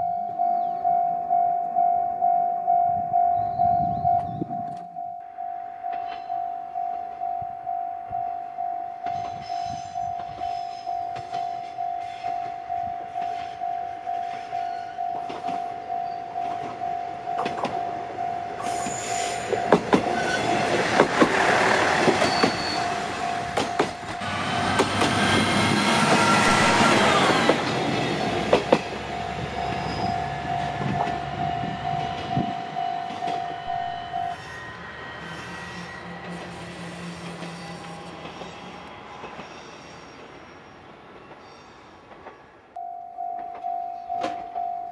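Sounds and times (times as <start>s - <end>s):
level crossing warning bell: 0.0s - 21.0s, 21.6s - 24.8s, 26.0s - 36.3s, 42.8s - 44.9s
diesel railcar passing: 0.0s - 44.9s
wheels clicking over rail joints: 14.2s - 26.2s, 27.2s - 33.5s.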